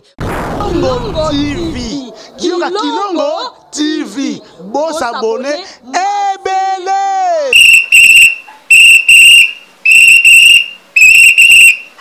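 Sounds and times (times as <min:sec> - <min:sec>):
shrill whistle double blasts: 0:07.5 - 0:12.0.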